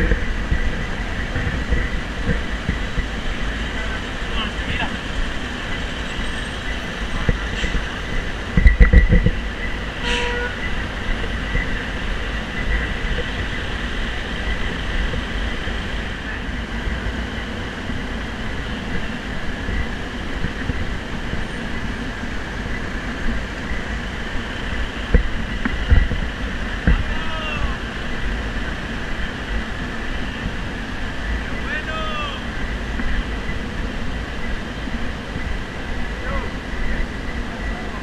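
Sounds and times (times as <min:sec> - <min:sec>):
street traffic rumble: 0:00.0 - 0:38.0.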